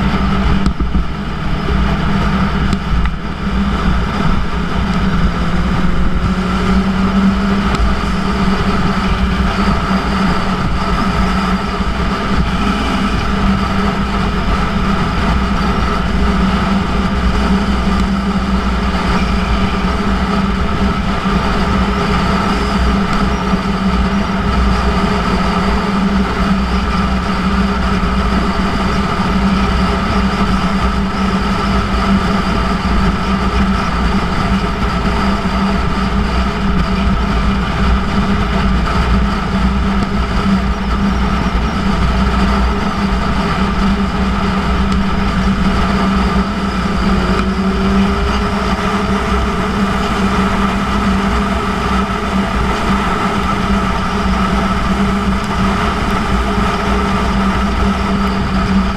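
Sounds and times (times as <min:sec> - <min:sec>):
wind rushing: 0:00.0 - 0:24.0
motorcycle engine cruising: 0:00.0 - 0:58.9.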